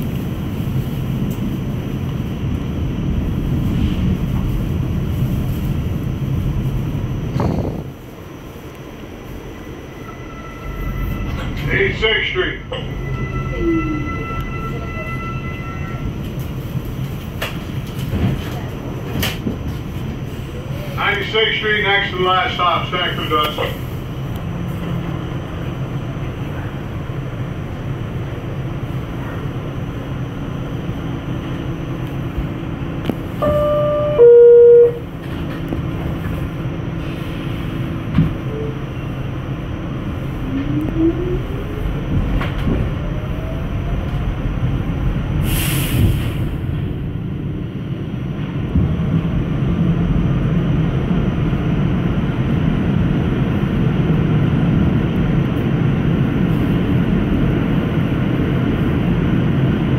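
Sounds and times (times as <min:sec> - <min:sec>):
subway car humming: 0:00.0 - 0:59.9
train wheel rumble: 0:00.0 - 0:59.9
two-tone door chime: 0:33.4 - 0:35.0.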